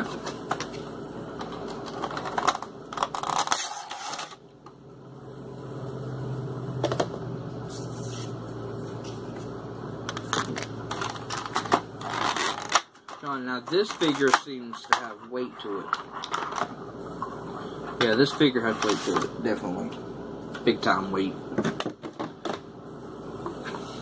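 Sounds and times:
plastic packaging crinkling: 10.3s - 14.5s.

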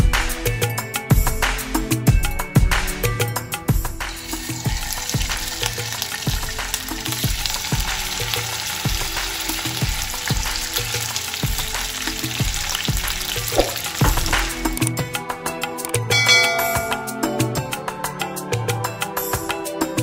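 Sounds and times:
fish sizzling in hot oil: 4.0s - 14.8s.

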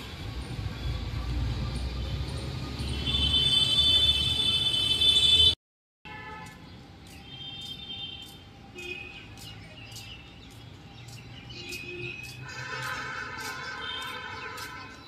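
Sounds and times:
birds chirping: 6.5s - 15.0s.

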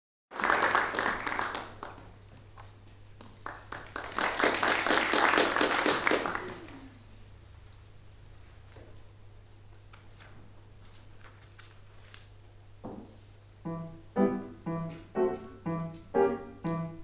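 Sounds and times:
audience applause: 0.3s - 2.1s, 3.4s - 6.9s.

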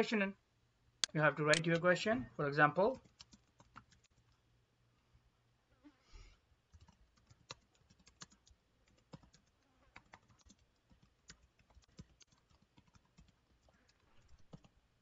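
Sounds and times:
typing on computer keyboard: 2.9s - 4.3s, 6.7s - 14.8s.

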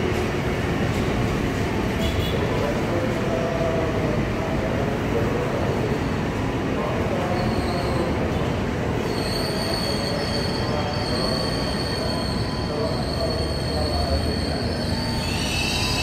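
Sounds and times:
electric train rumbling past: 0.0s - 16.0s
high wheel squeal: 7.3s - 8.2s, 9.0s - 16.0s.

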